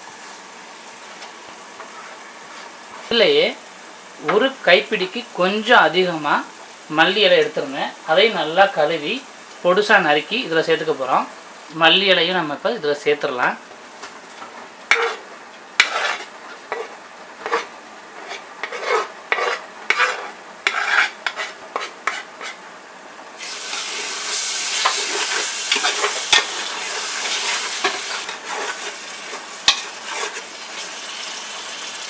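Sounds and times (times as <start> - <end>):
masala sizzling: 0.0 - 32.0
metal spoon scraping pot: 15.8 - 22.6.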